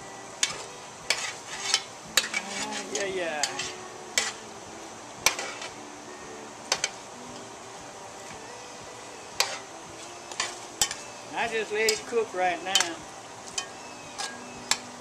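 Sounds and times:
food sizzling in hot grease: 0.0s - 15.0s.

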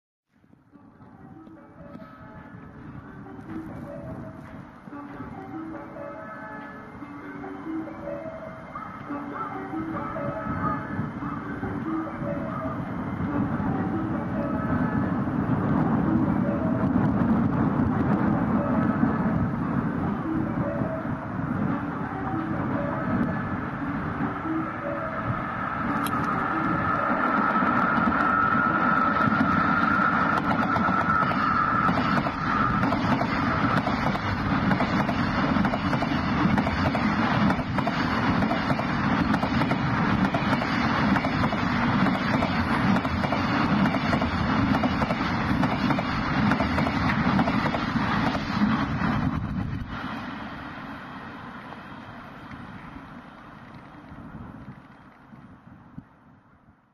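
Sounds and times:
high whine: 0.4s - 56.7s
train wheels clattering on rails: 27.3s - 49.9s.

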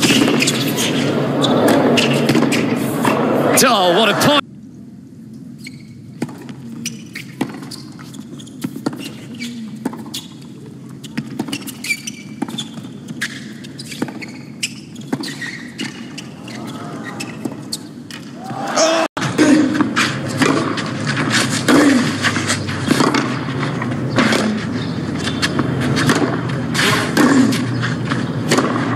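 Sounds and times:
racket striking tennis ball: 0.0s - 3.2s, 6.2s - 10.4s, 11.0s - 16.4s, 19.2s - 28.9s
tennis ball bouncing: 0.0s - 3.2s, 6.2s - 18.4s, 19.3s - 28.9s
low crowd hum: 0.0s - 28.9s
crowd cheering: 2.9s - 4.4s, 18.3s - 19.3s.

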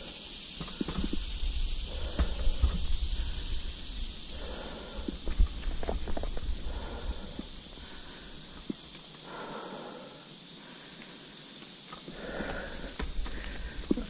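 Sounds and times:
bike tyres rustling on grass: 0.0s - 9.2s
insects chirring: 0.0s - 14.0s
bike knocks and rattles: 0.6s - 1.3s.

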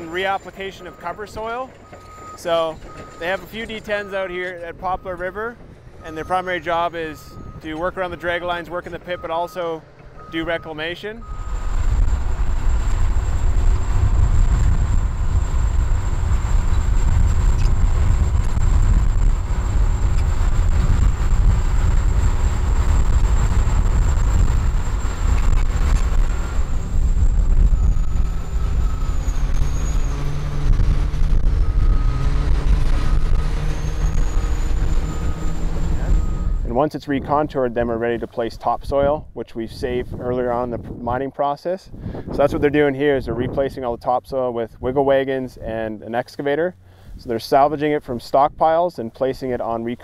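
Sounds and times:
bulldozer diesel engine under load: 0.0s - 38.2s.

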